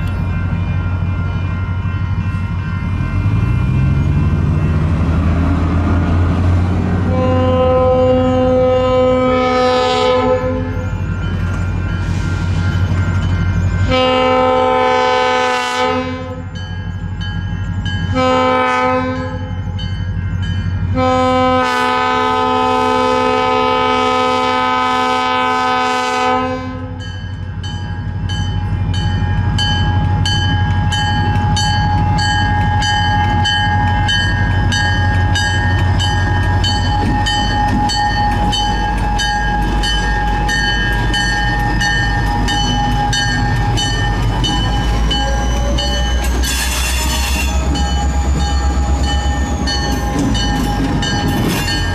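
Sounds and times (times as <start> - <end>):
diesel engines rumbling: 0.0 - 26.0, 27.4 - 51.9
crossing bell dinging: 0.0 - 51.9
diesel locomotive horn: 5.2 - 11.0, 13.8 - 16.6, 18.0 - 19.6, 20.8 - 27.1, 35.2 - 51.9.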